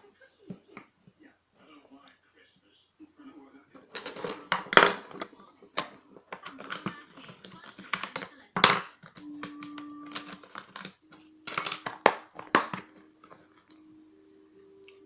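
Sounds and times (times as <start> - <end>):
metal tools clattering: 3.9 - 5.3, 10.1 - 13.4.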